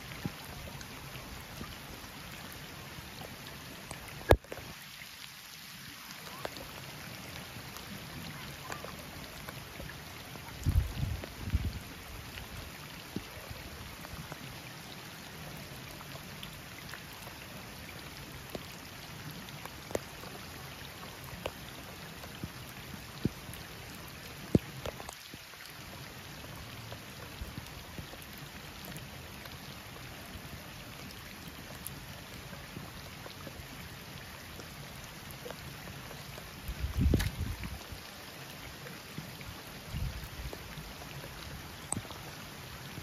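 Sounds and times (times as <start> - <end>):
rain falling on water: 0.0 - 43.0
sharp raindrop taps: 4.2 - 4.7.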